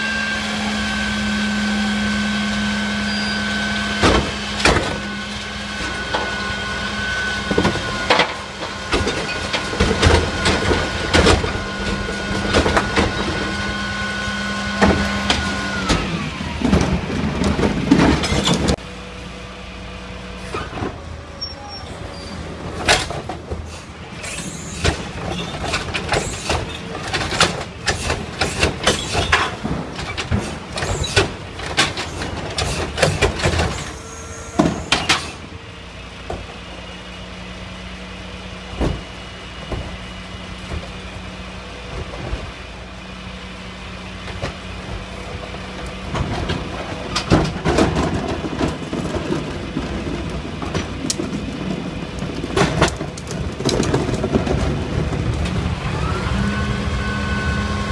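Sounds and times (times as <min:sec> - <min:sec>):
garbage truck diesel engine running: 0:00.0 - 0:57.9
recyclables and cart clattering: 0:14.8 - 0:18.8, 0:20.4 - 0:37.2, 0:43.8 - 0:57.9.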